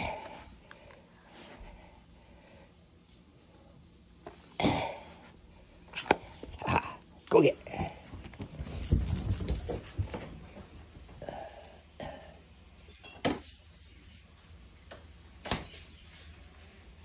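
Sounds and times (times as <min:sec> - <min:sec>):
puppies scuffling on carpet: 0:08.0 - 0:11.2.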